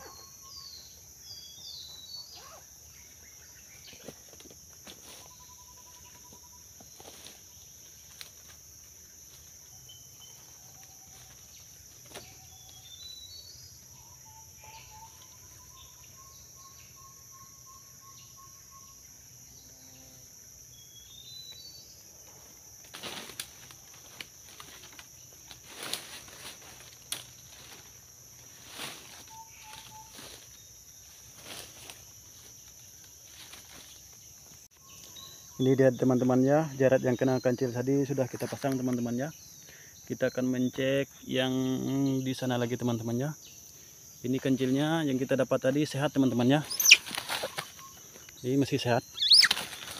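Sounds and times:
insects droning: 0.0 - 49.9
bird whistling and chirping: 46.7 - 48.0, 49.2 - 49.7.

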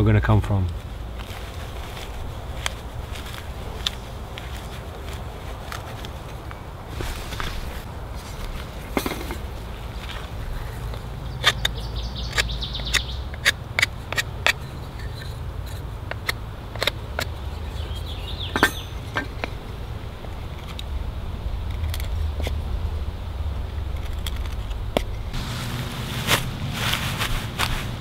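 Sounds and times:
birds chirping: 8.6 - 15.5, 16.7 - 20.2.

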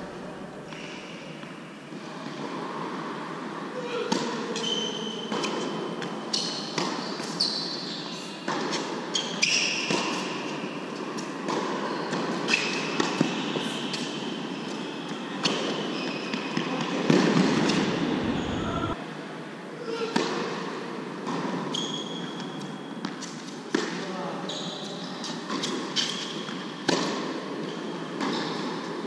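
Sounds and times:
shoes squeaking on court: 4.6 - 11.3, 11.9 - 19.0.

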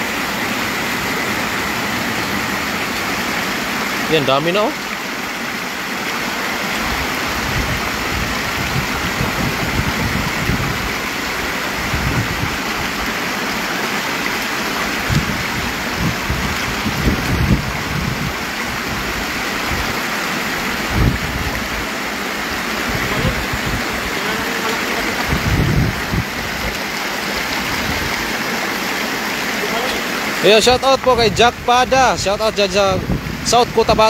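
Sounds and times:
water running over rocks: 0.0 - 34.0
dull low thumps: 25.2 - 26.7.

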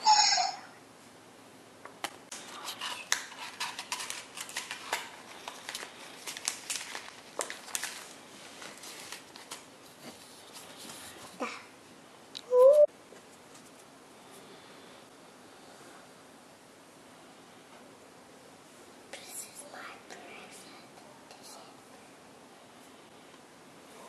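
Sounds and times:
animal call from small speaker: 0.0 - 0.7
plastic crinkles and clicks: 2.0 - 9.7.

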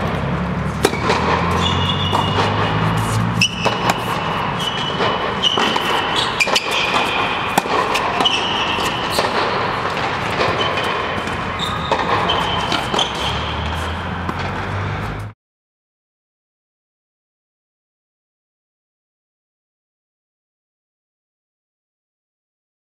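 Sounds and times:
ball bouncing: 0.0 - 15.3
racket striking ball: 0.0 - 15.3
sneaker squeaks: 0.6 - 15.4.

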